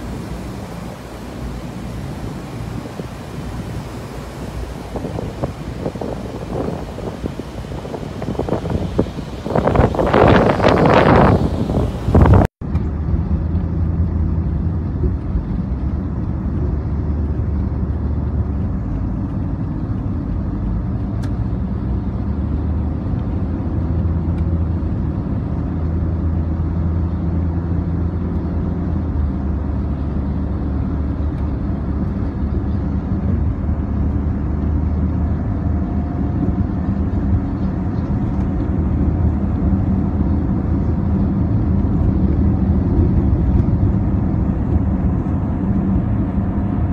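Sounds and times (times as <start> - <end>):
road traffic rumble: 0.0 - 46.9.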